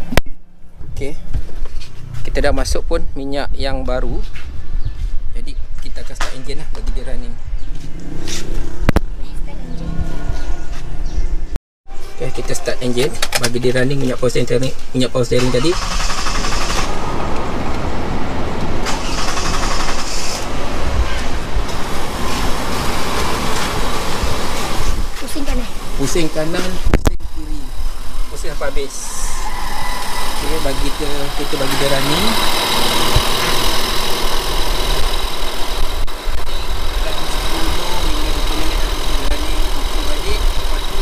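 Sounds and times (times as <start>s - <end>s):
thin steady whine: 27.1s - 41.0s
car engine idling: 30.1s - 41.0s.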